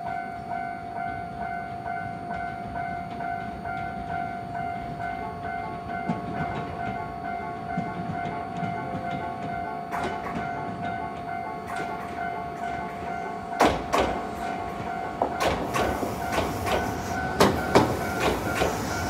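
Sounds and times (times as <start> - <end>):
level crossing warning bell ringing: 0.0 - 19.0
approaching train rumble: 5.0 - 19.0.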